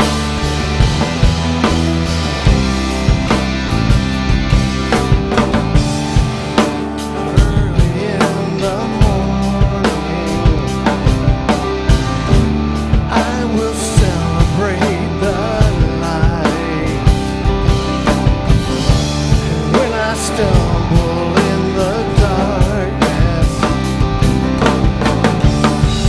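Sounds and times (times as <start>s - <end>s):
drum kit beat: 0.0s - 26.0s
rock band playing: 0.0s - 26.0s
person singing: 7.0s - 17.7s, 19.2s - 24.1s.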